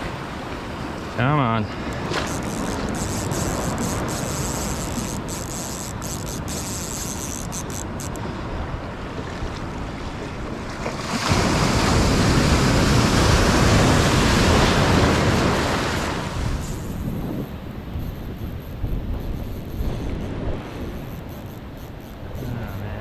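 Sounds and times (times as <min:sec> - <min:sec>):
ocean surf washing: 0:00.0 - 0:23.0
wave breaking: 0:08.2 - 0:23.0.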